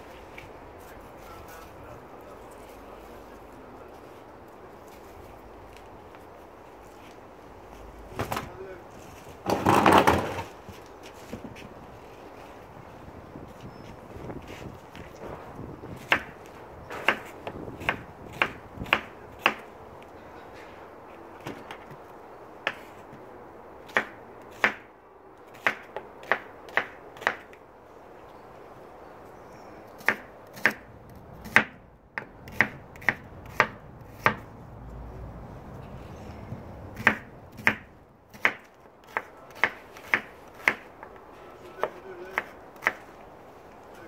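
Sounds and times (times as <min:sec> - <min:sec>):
knife chopping on wooden board: 0:31.4 - 0:34.4, 0:37.0 - 0:40.9.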